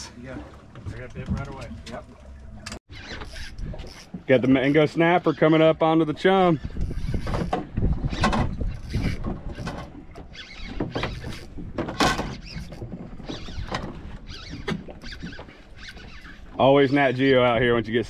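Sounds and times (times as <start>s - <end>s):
fishing reel whirring and squeaking: 2.6s - 5.6s, 6.4s - 16.6s.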